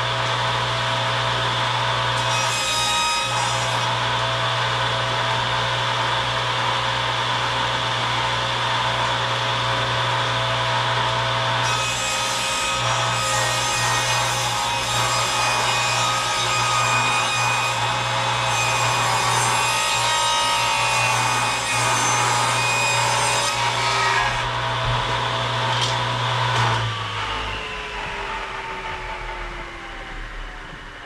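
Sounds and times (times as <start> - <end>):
table saw cutting wood: 0.0 - 30.6
saw blade winding down whine: 23.6 - 31.0.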